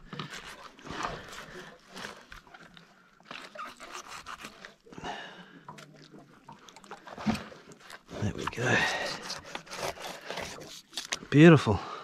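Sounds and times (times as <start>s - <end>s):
knife scraping and crunching fish: 0.0s - 2.6s, 3.2s - 5.0s, 7.1s - 11.3s.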